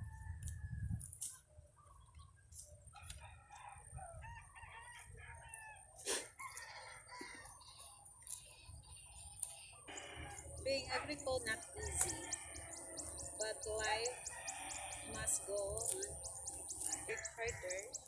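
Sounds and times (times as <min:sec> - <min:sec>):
wind rumbling on microphone: 0:00.0 - 0:05.5
faint roosters crowing: 0:00.0 - 0:18.0
bird calls: 0:01.3 - 0:03.0, 0:06.4 - 0:18.0.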